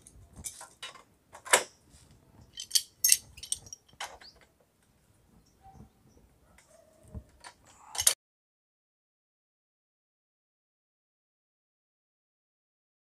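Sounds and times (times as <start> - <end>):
pipe wrenches clinking on pipe: 2.5 - 4.3, 8.0 - 8.2.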